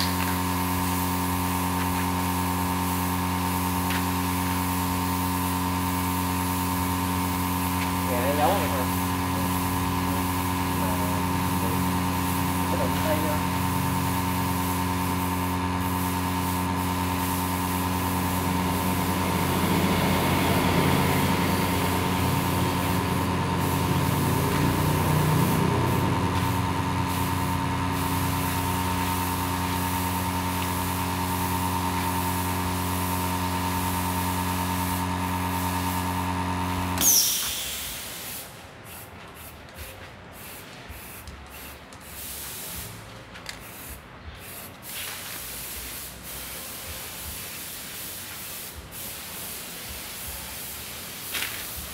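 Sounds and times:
spray paint hissing: 0.0 - 51.9
steady machine hum: 0.4 - 37.0.

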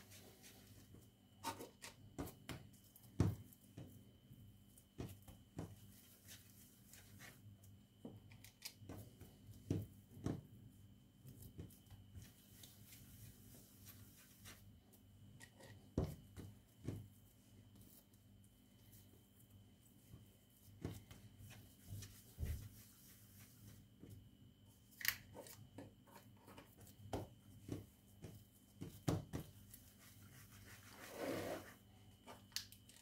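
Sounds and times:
hands rubbing dough: 0.0 - 7.9, 8.9 - 24.4, 25.9 - 32.2
dough taps and knocks: 2.1 - 4.0, 4.9 - 5.9, 8.8 - 10.5, 27.1 - 29.6.

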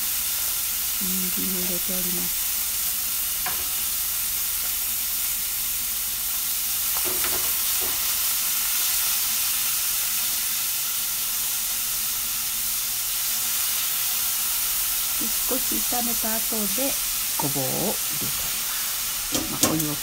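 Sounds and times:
food sizzling in frying pan: 0.0 - 20.0
chopsticks clacking against pan: 19.3 - 20.0.

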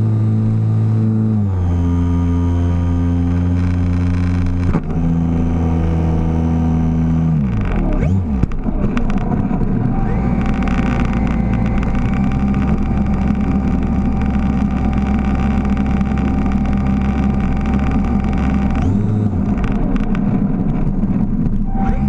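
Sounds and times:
heavy low rumble: 0.0 - 22.0
model plane electric motor whining: 7.5 - 19.6.

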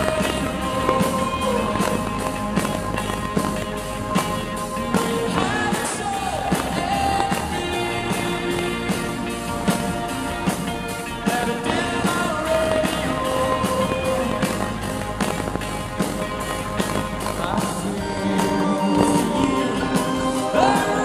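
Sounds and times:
man singing: 0.0 - 3.5, 4.6 - 9.6, 11.2 - 14.9, 16.9 - 21.0
drum beat: 0.0 - 21.0
electric guitar: 0.0 - 21.0.

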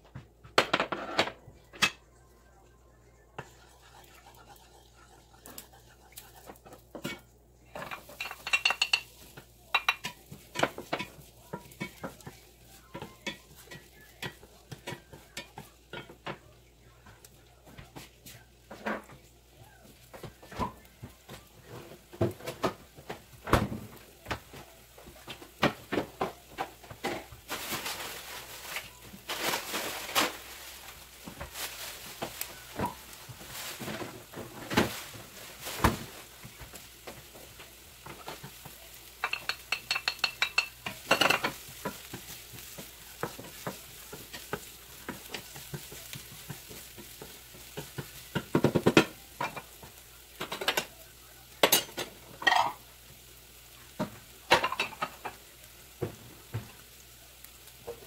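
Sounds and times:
onions sizzling in frying pan: 2.7 - 58.0
wooden spatula scraping pan: 3.4 - 16.5, 19.8 - 50.9.

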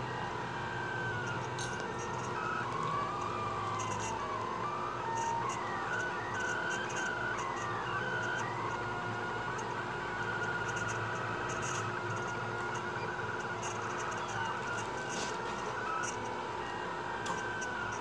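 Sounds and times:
stepper motors whining: 0.0 - 18.0.

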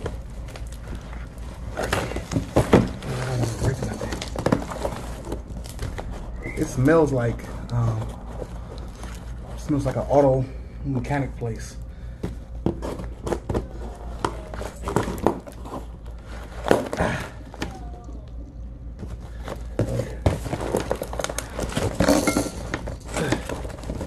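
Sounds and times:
steady low hum: 0.0 - 24.0
knocks and thuds of parts handled: 1.8 - 6.2, 12.2 - 15.9, 19.0 - 24.0.

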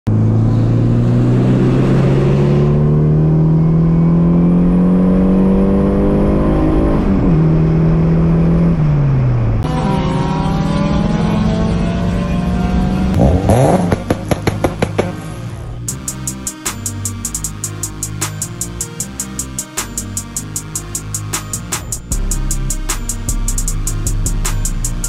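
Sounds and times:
car engine accelerating: 0.1 - 16.0.

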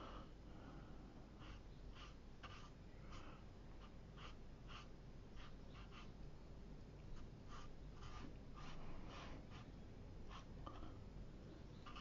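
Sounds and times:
brush strokes on paper: 1.4 - 6.2, 7.2 - 10.5.

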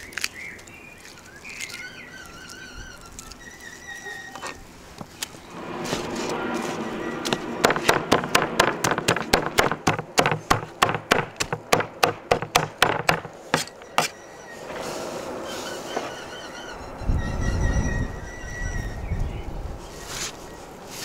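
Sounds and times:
cleaver chopping on wooden board: 7.6 - 14.1.

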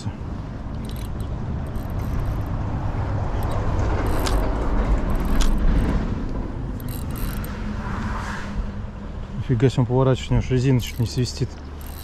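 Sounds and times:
car passing: 0.4 - 9.4.

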